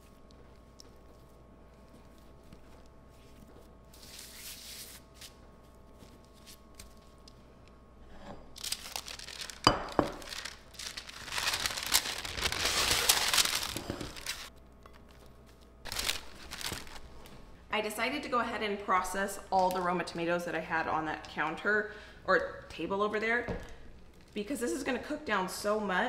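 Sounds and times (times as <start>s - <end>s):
parchment paper crinkling: 8.6s - 17.3s.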